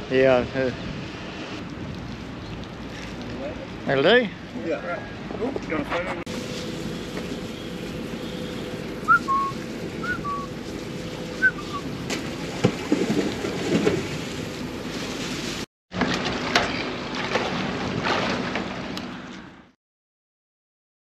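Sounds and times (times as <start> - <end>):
wind on microphone: 0.7 - 2.0
short chirps: 7.6 - 10.5
fish splashing at surface: 9.1 - 15.7.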